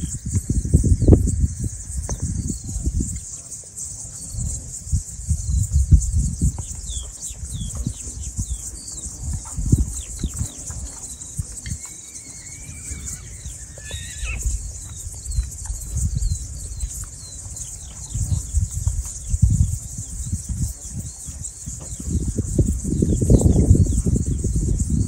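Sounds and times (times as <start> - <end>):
high insect hum: 0.0 - 25.0
horses running: 5.9 - 24.9
hoofbeats: 6.6 - 19.8
horse whinnying: 11.7 - 14.6.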